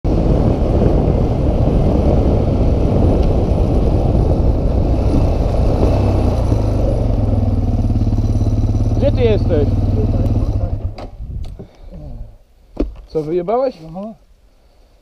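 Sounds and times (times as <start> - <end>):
quad engine revving and idling: 5.0 - 11.0.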